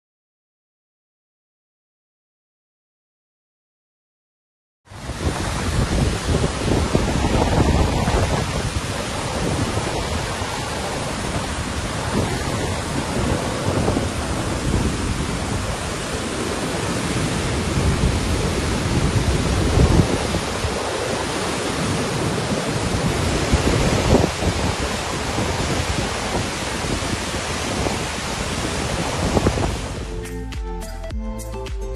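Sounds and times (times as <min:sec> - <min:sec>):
deep water rumble: 0:04.9 - 0:30.1
floodwater rushing: 0:04.9 - 0:30.1.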